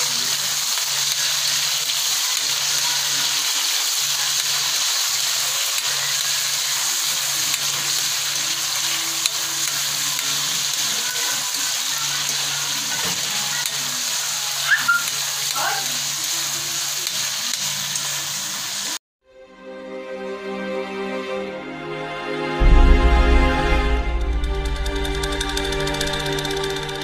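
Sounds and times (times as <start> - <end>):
tofu sizzling in hot oil: 0.0 - 19.0.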